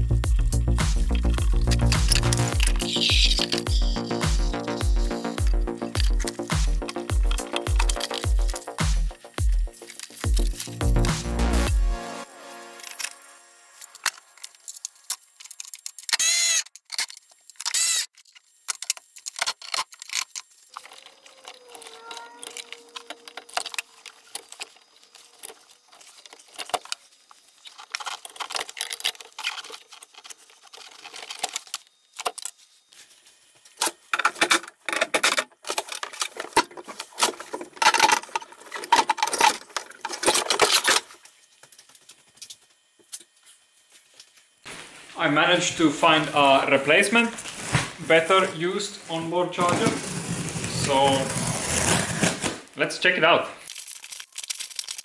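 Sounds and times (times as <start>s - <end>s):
connectors clicking and rattling: 0.3s - 11.7s, 13.8s - 32.6s, 33.7s - 43.3s, 53.7s - 55.0s.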